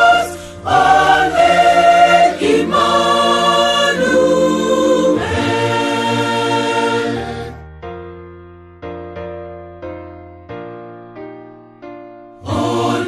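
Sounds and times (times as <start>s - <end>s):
choir singing a hymn: 0.0s - 7.6s, 12.4s - 13.0s
breath between phrases: 0.4s - 0.6s.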